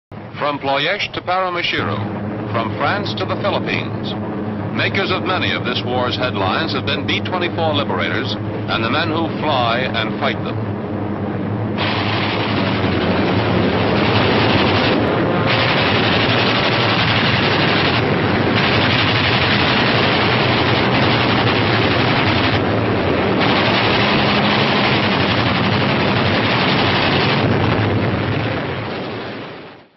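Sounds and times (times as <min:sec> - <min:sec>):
low engine drone: 0:00.1 - 0:29.9
rapid machine-gun fire: 0:11.8 - 0:27.8.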